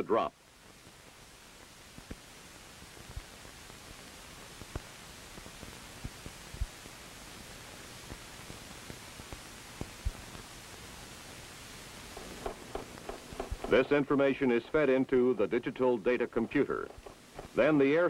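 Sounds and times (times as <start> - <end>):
old film soundtrack hiss: 0.0 - 18.0
film soundtrack pops: 12.1 - 17.7.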